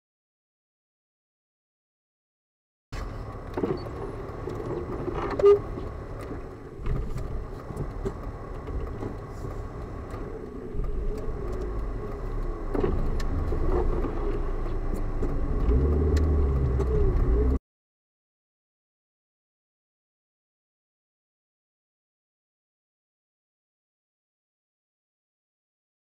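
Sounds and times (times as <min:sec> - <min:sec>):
car engine and tyre rumble: 0:03.0 - 0:17.6.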